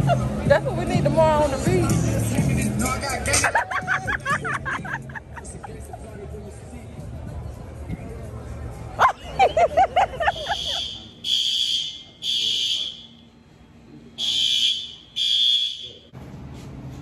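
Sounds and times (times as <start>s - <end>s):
fire alarm high beeps: 10.4s - 13.2s, 14.2s - 16.0s.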